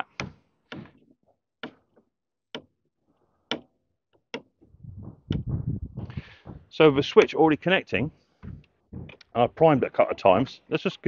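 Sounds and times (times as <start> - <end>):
low rumble: 4.8 - 6.3.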